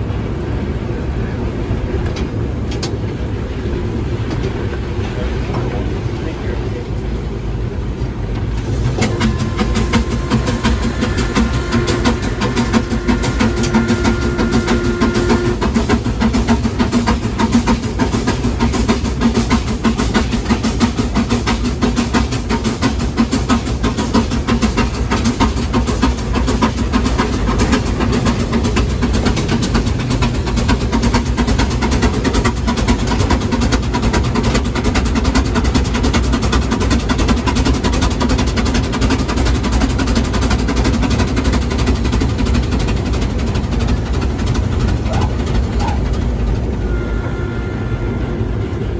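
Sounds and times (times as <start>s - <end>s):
steam engine clatter: 0.0s - 48.9s
held tone: 8.9s - 15.7s, 45.1s - 48.9s.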